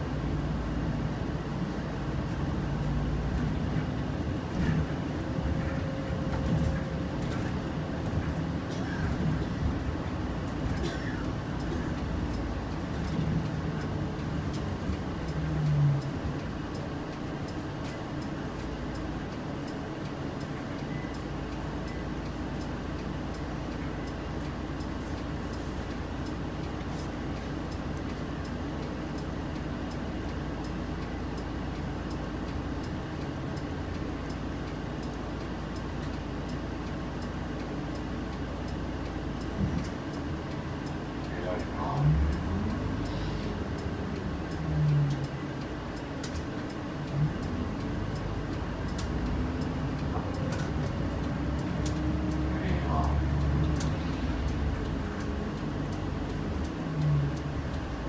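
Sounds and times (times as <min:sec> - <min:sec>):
bus engine idling: 0:00.0 - 0:58.0
faint regular ticking: 0:00.3 - 0:58.0.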